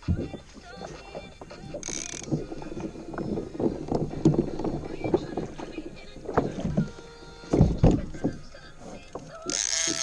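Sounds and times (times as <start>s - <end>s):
water around hull: 0.0s - 10.0s
fishing gear knocking on kayak: 0.1s - 8.6s.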